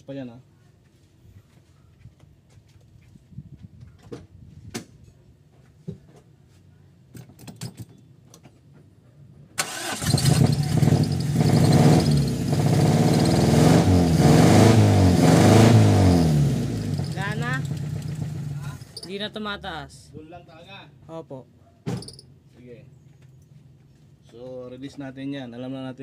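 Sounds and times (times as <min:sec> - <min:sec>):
engine cranking and starting: 0:09.6 - 0:13.5.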